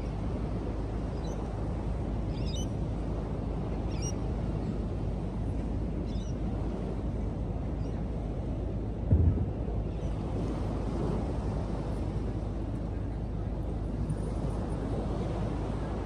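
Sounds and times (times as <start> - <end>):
wind noise on microphone: 9.0 - 12.6.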